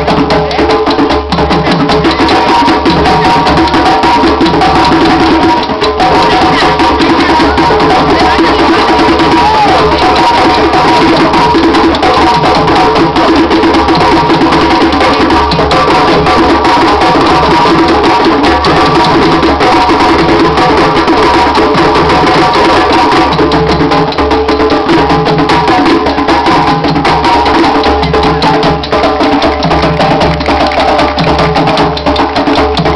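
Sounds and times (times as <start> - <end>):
hand drums: 0.0 - 32.9
wooden clicking percussion: 22.3 - 32.9.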